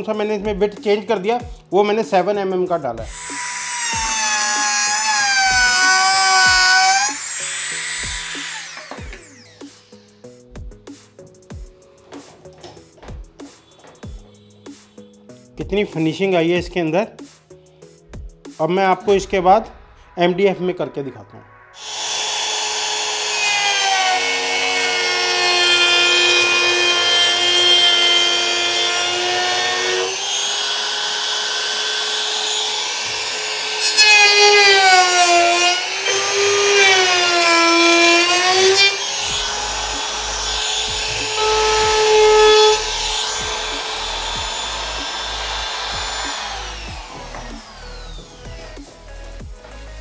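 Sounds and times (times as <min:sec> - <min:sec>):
wood router whining: 0:03.1 - 0:10.4, 0:21.8 - 0:49.9.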